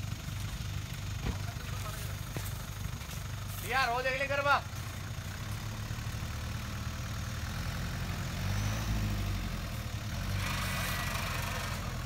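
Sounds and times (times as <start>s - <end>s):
vehicle engines at low revs: 0.0s - 12.0s.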